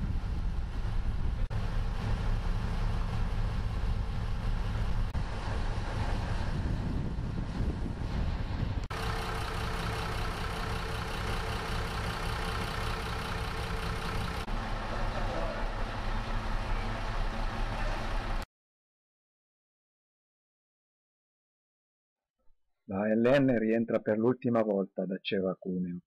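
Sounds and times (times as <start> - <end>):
diesel engines idling: 0.0 - 7.4, 8.8 - 18.4.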